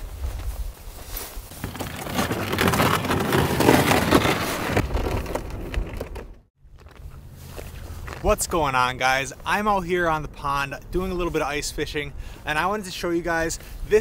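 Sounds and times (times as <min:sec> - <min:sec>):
plastic sled scraping on ice: 0:01.5 - 0:06.5.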